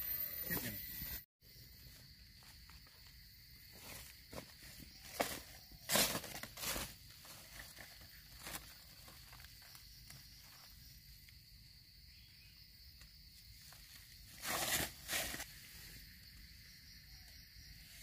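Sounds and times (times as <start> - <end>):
high insect drone: 0.0 - 18.0
rustling in dry leaf litter: 3.8 - 10.6, 13.6 - 16.0.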